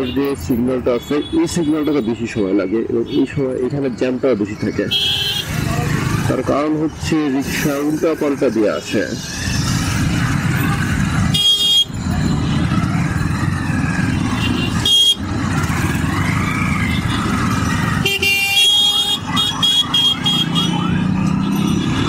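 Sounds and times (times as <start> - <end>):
street traffic: 0.0 - 22.0
vehicle horns honking: 0.9 - 2.4, 4.8 - 5.7, 11.2 - 12.7, 14.3 - 15.3, 17.9 - 22.0
motorcycle engine rumble: 9.2 - 22.0.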